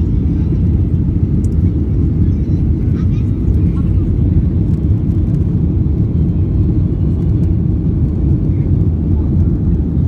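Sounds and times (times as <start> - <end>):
jet engine and airflow rumble: 0.0 - 10.0.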